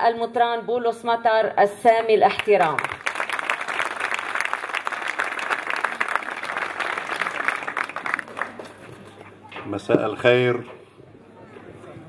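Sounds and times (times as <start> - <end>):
audience applauding: 2.6 - 9.4.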